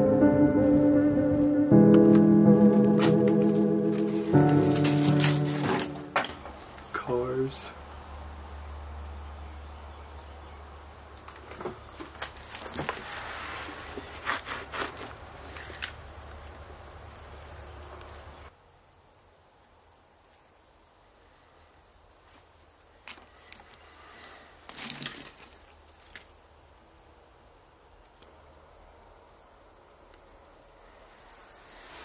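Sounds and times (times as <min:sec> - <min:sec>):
faint footsteps on debris: 0:02.7 - 0:06.6, 0:11.3 - 0:16.4.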